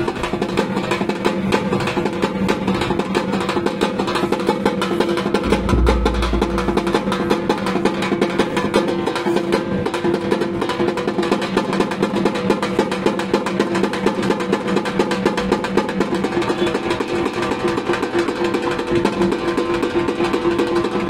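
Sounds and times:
drum ensemble playing fast rhythm: 5.2s - 7.6s
heavy low rumble: 5.4s - 7.5s.

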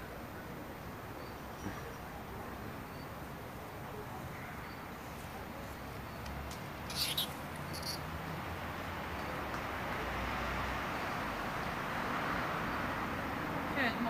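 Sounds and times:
outdoor background noise: 0.0s - 14.0s
faint bird chirps: 6.9s - 8.0s
rat squeaking: 6.9s - 8.0s.

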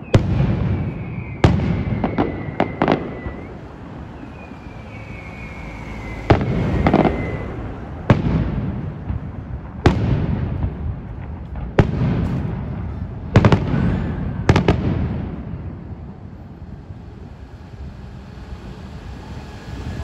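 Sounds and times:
falling firework whistle: 0.0s - 9.0s, 13.4s - 20.0s
fireworks bursting with bangs: 0.0s - 20.0s.

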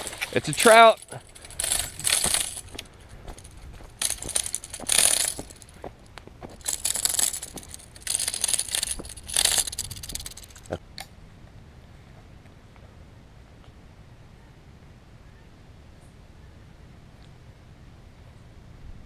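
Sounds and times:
fish flopping on gravel: 0.0s - 10.7s
footsteps on gravel: 0.0s - 10.8s.

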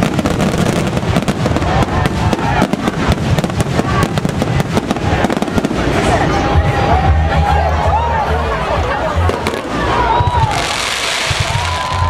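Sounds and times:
fireworks bangs: 0.0s - 6.5s, 9.2s - 12.0s
fireworks crackling: 0.0s - 6.6s, 9.2s - 12.0s.

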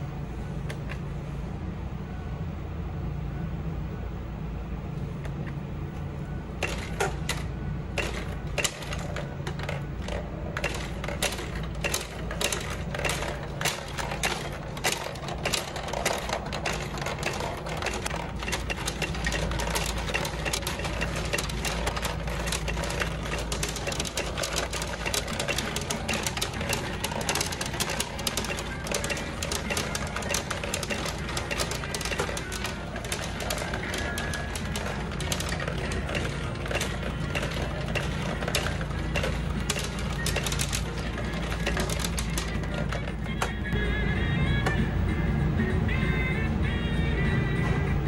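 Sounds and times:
steady low hum: 0.0s - 48.0s
steel balls clattering through pins: 6.6s - 43.8s.

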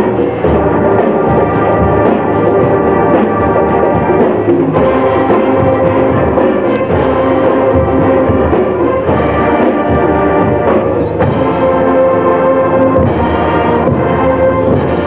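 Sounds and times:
horns holding sustained notes: 0.0s - 15.0s
marching drums: 0.0s - 15.0s.

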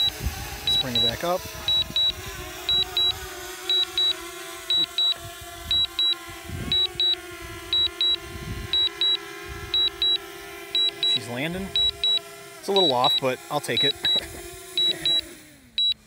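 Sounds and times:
remote controller double beep: 0.0s - 7.2s, 7.8s - 8.2s, 8.8s - 9.2s, 9.8s - 10.2s, 10.8s - 12.2s, 12.8s - 14.2s, 14.8s - 16.0s
drone propellers humming: 0.0s - 16.0s.

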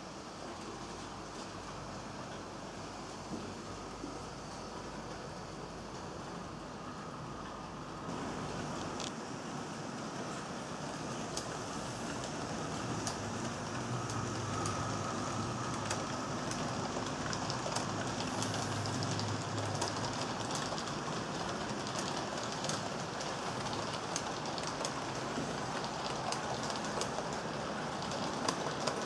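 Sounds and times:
wheels clicking over rail joints: 11.0s - 29.0s.

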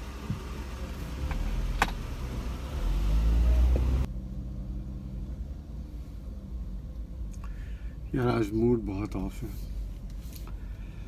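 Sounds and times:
car engine accelerating: 0.0s - 7.4s
car cabin drone: 0.0s - 8.9s.

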